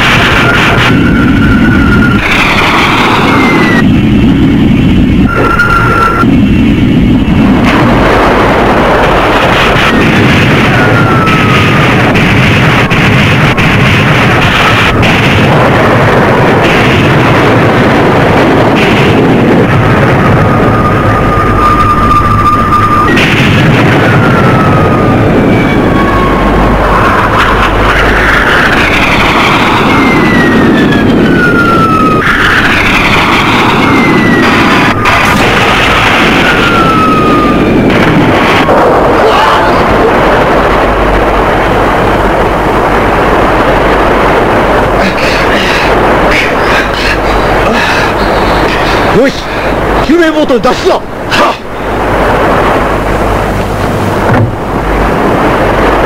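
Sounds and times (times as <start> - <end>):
falling whines: 0.0 - 50.1
boat engine and spray: 0.0 - 56.0
explosions: 0.0 - 56.0
rushing blasts: 0.0 - 56.0
faint falling whistle: 20.8 - 23.2.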